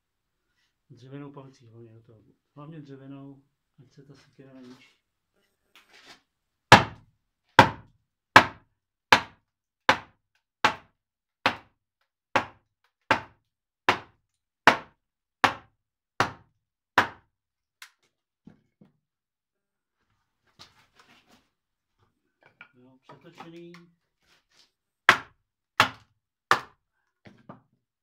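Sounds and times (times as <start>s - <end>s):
mallet knocking on axe: 6.7s - 7.0s, 9.2s - 10.1s, 12.4s - 13.3s, 14.7s - 15.6s, 25.1s - 26.7s.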